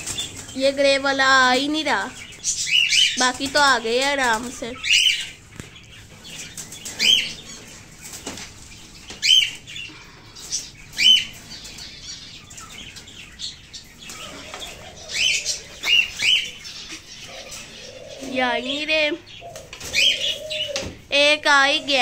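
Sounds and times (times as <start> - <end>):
wings flapping: 0.0 - 1.2.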